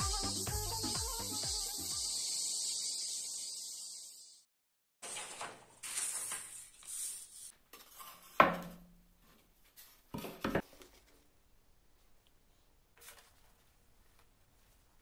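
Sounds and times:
paper rustling and sliding: 5.0s - 8.4s, 13.0s - 14.9s.

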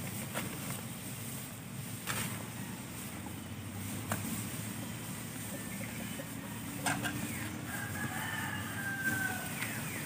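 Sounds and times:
low background noise: 0.0s - 10.0s
rooster crowing: 7.6s - 10.0s.

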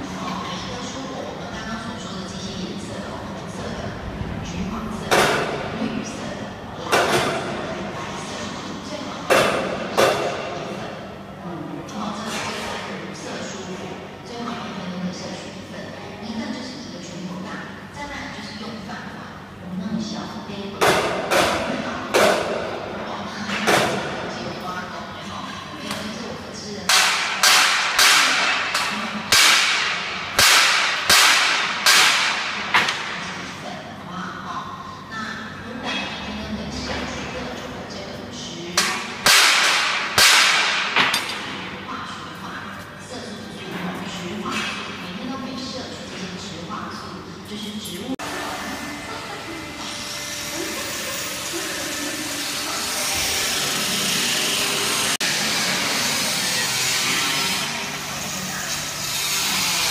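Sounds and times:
sharp metallic bangs echoing: 26.9s - 33.2s, 38.8s - 41.5s
machine whir and hiss: 48.1s - 59.9s.

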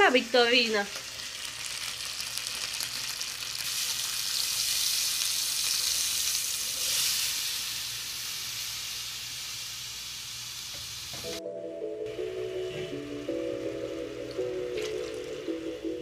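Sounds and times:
vegetables sizzling in a pot: 0.0s - 11.4s
beans and liquid pouring: 14.7s - 15.5s.

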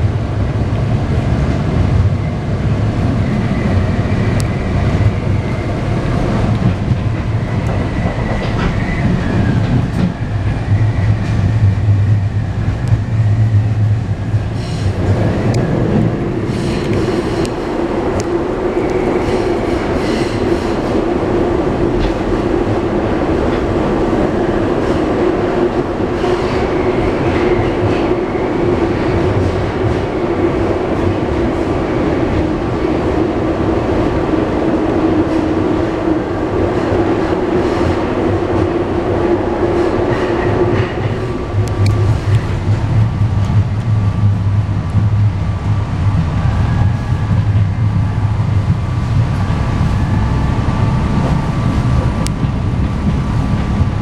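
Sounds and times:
subway train rumble: 0.0s - 54.0s
train whine: 0.0s - 54.0s.

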